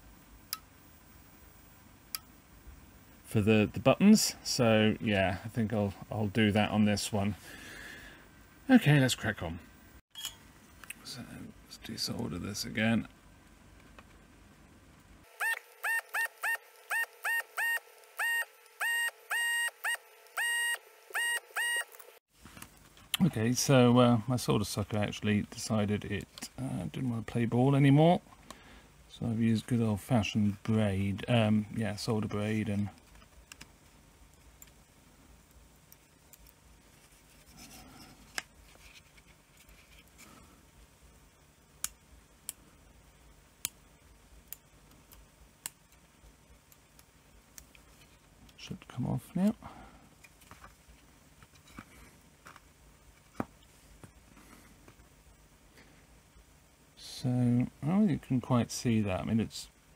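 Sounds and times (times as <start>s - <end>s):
faint steady hum: 0.0s - 59.9s
electronic beeps: 15.4s - 21.9s
soft rubbing: 36.8s - 40.5s.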